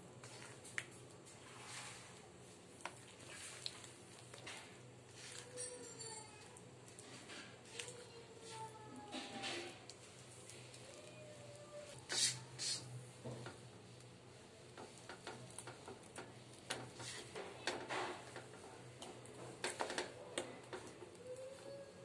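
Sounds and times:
spatula scraping dough in wok: 0:01.4 - 0:02.2, 0:12.1 - 0:12.9, 0:16.7 - 0:17.4.

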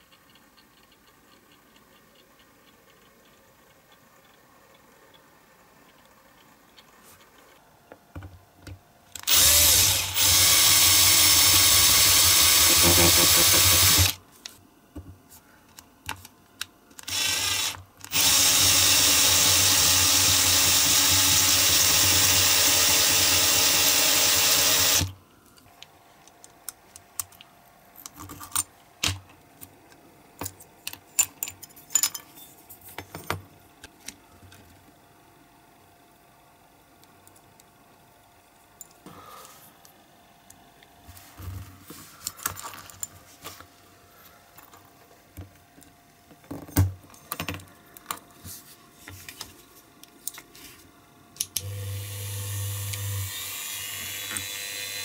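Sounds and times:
power drill drilling metal: 0:09.2 - 0:14.2, 0:17.0 - 0:25.1, 0:51.6 - 0:55.0.

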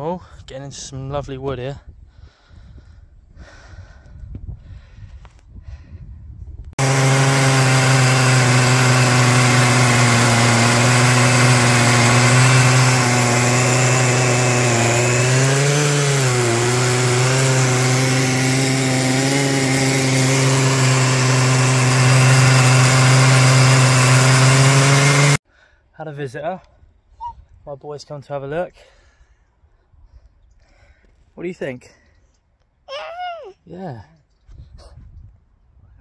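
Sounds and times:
chainsaw cutting wood: 0:06.8 - 0:25.4.

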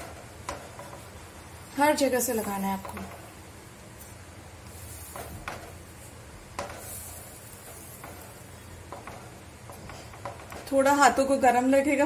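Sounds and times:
water hissing on hot pan: 0:00.0 - 0:12.0.

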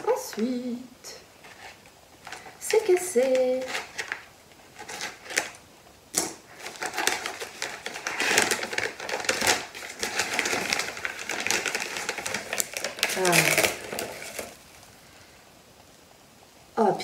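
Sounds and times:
paper crinkling and rustling: 0:01.4 - 0:14.9.

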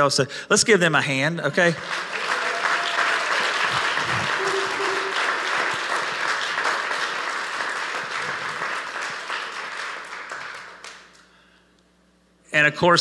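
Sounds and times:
crowd clapping: 0:01.6 - 0:11.3.

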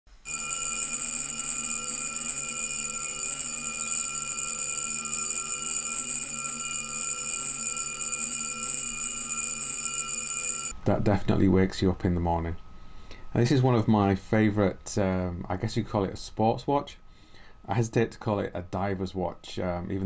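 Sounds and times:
wristwatch alarm buzzing: 0:00.1 - 0:10.7.

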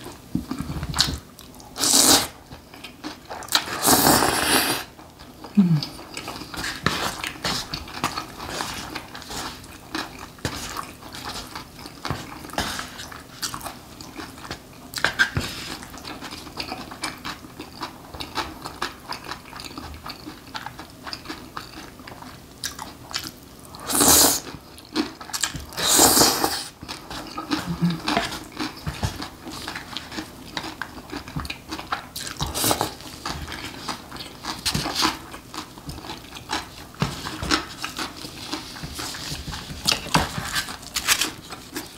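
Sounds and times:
chewing and wet mouth noises: 0:00.0 - 0:41.9
slurping noodles: 0:01.8 - 0:02.4, 0:03.6 - 0:04.9, 0:25.8 - 0:26.8.

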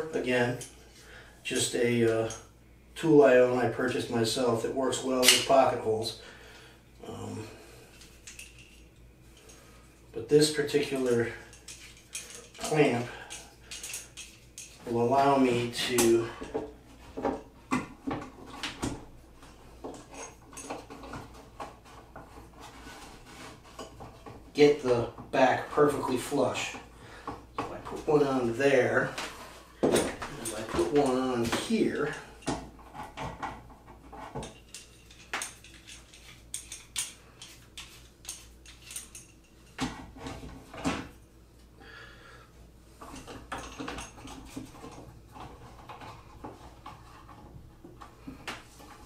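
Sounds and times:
clamps clicking and clattering: 0:29.1 - 0:41.1, 0:43.0 - 0:49.0.

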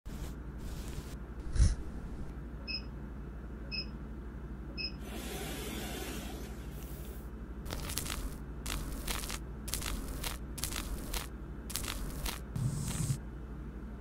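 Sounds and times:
steady low hum: 0:00.1 - 0:05.0, 0:06.3 - 0:14.0
mask peeling rustle: 0:07.7 - 0:13.2.

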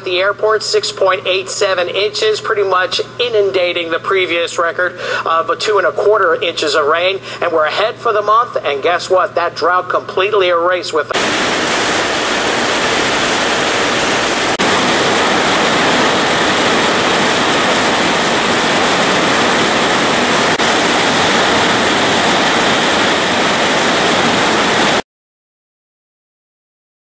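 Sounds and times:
torrential rain pouring: 0:11.2 - 0:25.0.

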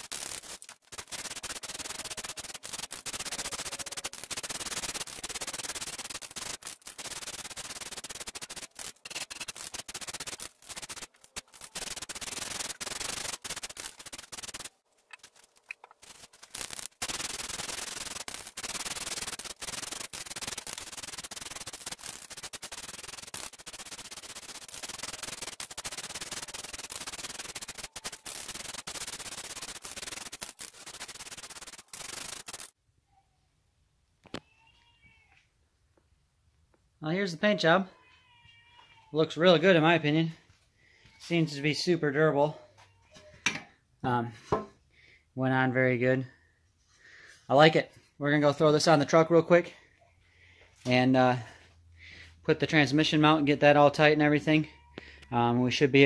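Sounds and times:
aerosol spray can hissing: 0:00.0 - 0:32.7.

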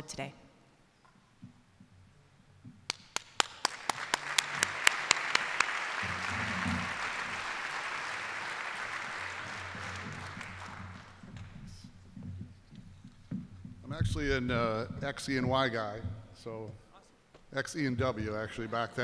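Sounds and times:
loud single claps: 0:02.8 - 0:11.4
audience applauding: 0:02.9 - 0:11.8.

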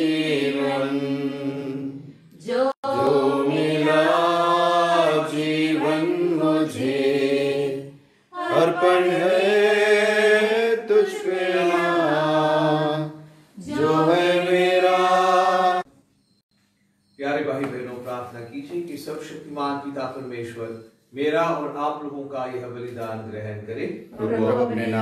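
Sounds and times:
group singing a hymn: 0:00.0 - 0:15.9, 0:24.2 - 0:25.0.

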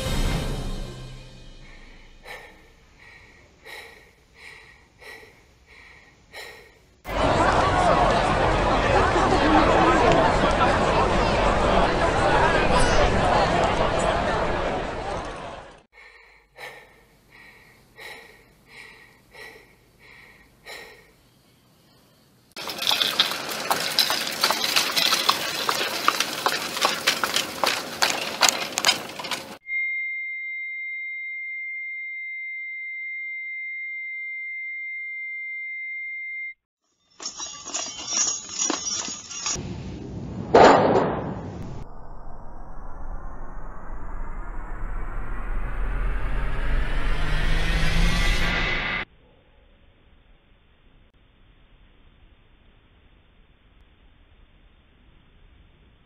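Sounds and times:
person breathing quickly: 0:01.5 - 0:07.0, 0:15.9 - 0:21.4
store chatter: 0:07.1 - 0:15.8
clattering and noise: 0:22.6 - 0:29.6, 0:37.1 - 0:41.9
loud burst of noise: 0:40.2 - 0:49.1.

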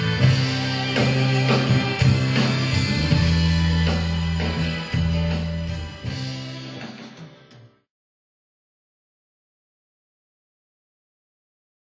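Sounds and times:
bass notes: 0:00.0 - 0:06.7
electric guitars: 0:00.0 - 0:07.8
drums: 0:00.0 - 0:07.9.

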